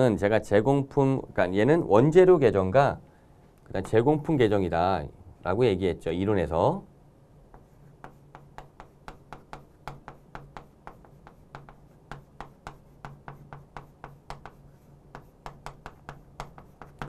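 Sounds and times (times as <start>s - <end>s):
writing taps on a board: 7.5s - 17.0s.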